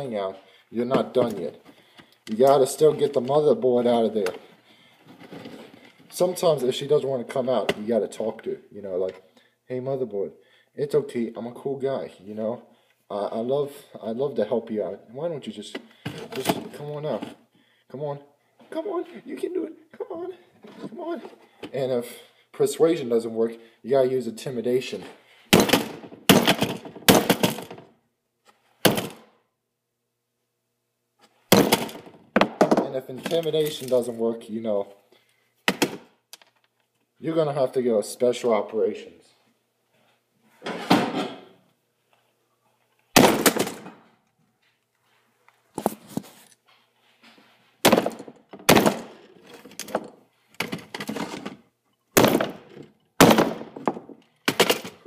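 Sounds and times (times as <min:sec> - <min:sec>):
router case being struck: 0:25.5 - 0:27.8, 0:31.5 - 0:32.8, 0:47.9 - 0:49.2, 0:52.2 - 0:55.0
sharp cracking impacts: 0:25.5 - 0:27.9, 0:31.5 - 0:34.0, 0:43.1 - 0:44.1, 0:47.8 - 0:51.5, 0:52.1 - 0:55.0.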